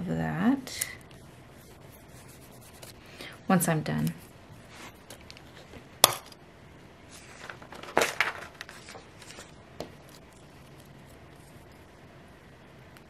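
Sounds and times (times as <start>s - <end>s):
paper pages rustling: 7.1s - 11.8s.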